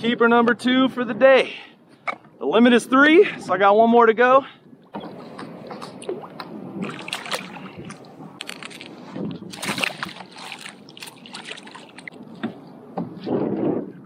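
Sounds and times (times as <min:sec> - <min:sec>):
fish thrashing in water: 0:05.0 - 0:12.2.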